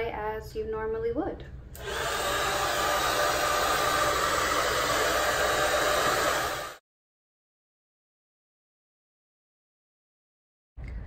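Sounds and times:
hair dryer blowing: 1.8s - 6.8s.

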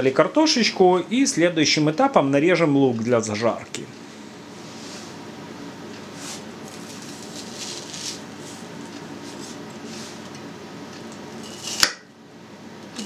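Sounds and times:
knife scraping and cutting onion: 6.1s - 10.2s, 11.4s - 12.0s.

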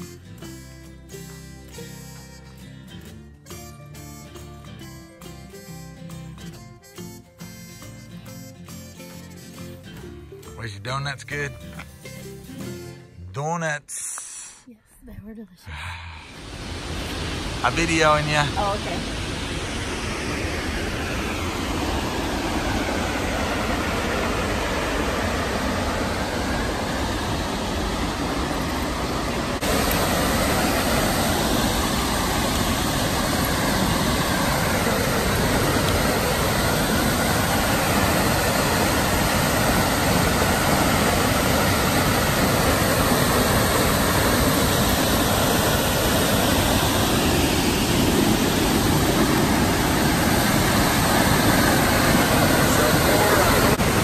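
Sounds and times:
waterfall rushing: 16.4s - 54.0s.

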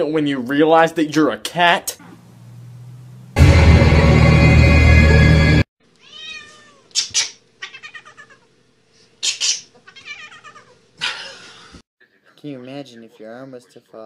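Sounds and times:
cat meowing and yowling: 6.0s - 6.9s, 7.6s - 8.4s, 9.9s - 10.7s.

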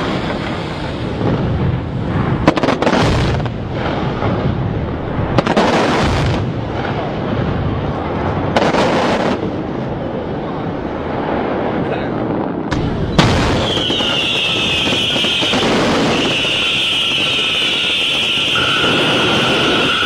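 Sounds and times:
fireworks launching and bursting: 0.0s - 10.1s, 12.6s - 20.0s
sharp firework cracks: 12.7s - 19.2s.

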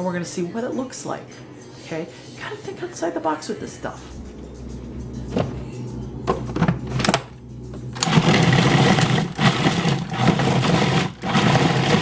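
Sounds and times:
food processor running: 8.0s - 12.0s.

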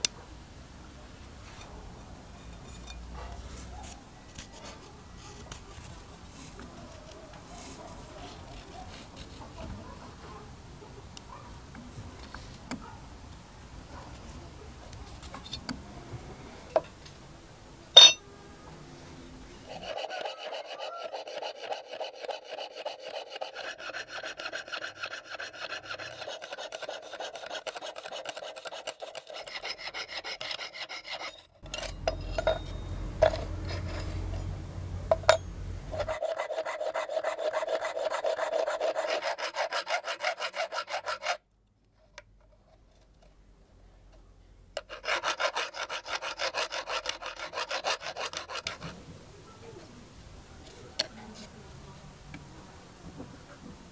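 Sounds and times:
hand saw cutting brass sheet: 19.7s - 31.4s, 36.0s - 41.4s, 44.8s - 48.9s.

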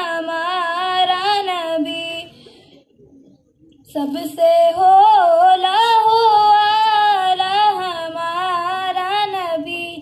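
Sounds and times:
boy singing unaccompanied: 3.9s - 10.0s.

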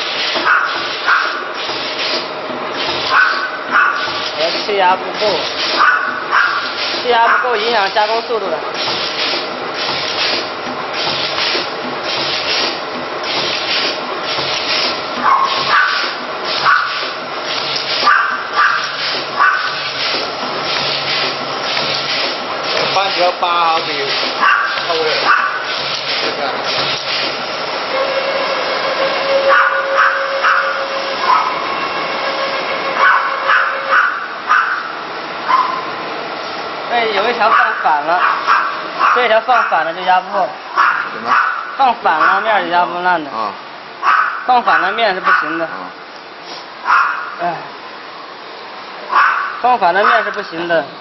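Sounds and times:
machine motor whining: 0.0s - 34.0s.

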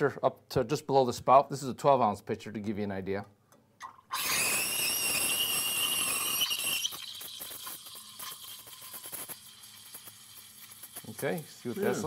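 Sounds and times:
steam wand hissing and squealing: 4.2s - 7.8s.

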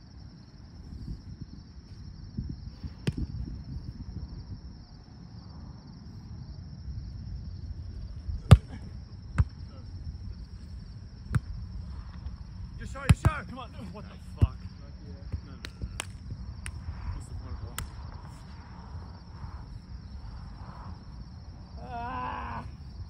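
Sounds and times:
wind on microphone: 0.8s - 5.7s, 15.8s - 21.8s
volleyball slaps: 3.0s - 3.3s, 8.4s - 8.8s, 15.6s - 16.8s, 17.8s - 18.0s.

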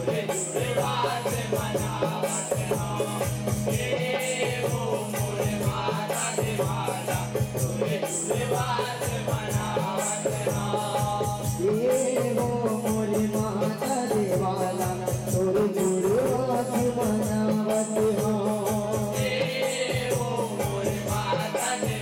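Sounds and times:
man singing: 0.0s - 22.0s.

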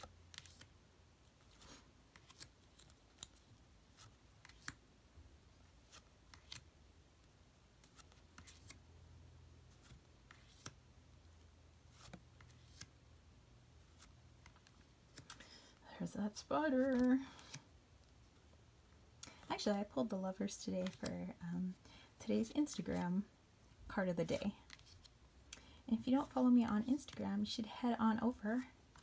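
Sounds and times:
cards flipping onto a pile: 0.0s - 0.7s, 1.4s - 4.8s, 5.8s - 6.7s, 7.8s - 8.8s, 9.7s - 10.8s, 11.9s - 13.0s, 13.8s - 15.5s, 16.8s - 17.7s, 20.8s - 21.1s, 24.3s - 25.1s.

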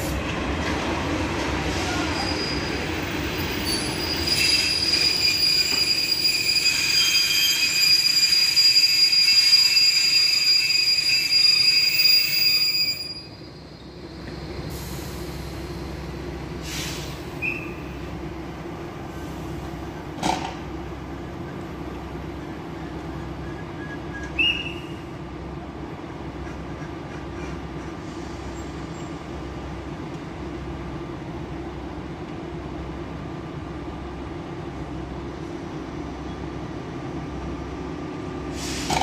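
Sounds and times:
low hum of standing train: 0.0s - 39.0s
train brakes squealing: 1.6s - 15.8s, 16.6s - 18.0s, 22.8s - 25.2s, 38.5s - 39.0s.

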